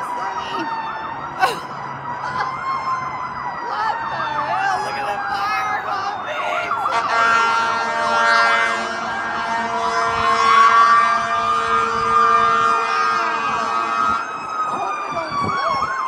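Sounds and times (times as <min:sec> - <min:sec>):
emergency sirens warbling and wailing: 0:00.0 - 0:16.0
steady horn: 0:06.8 - 0:14.2.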